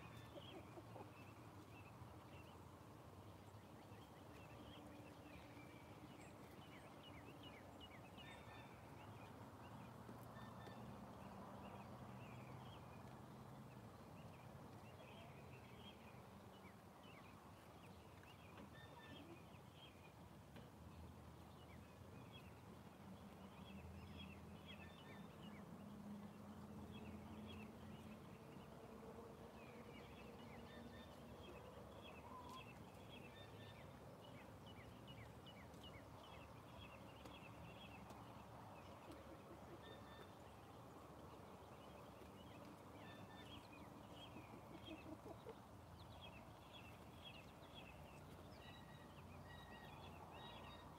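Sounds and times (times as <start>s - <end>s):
hens clucking softly: 0.2s - 1.3s, 44.4s - 45.7s.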